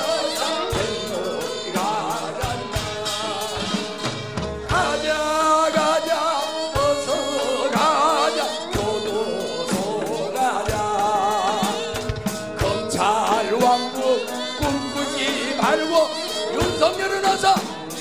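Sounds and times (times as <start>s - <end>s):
drum strokes: 0.0s - 18.0s
person singing with vibrato: 0.0s - 18.0s.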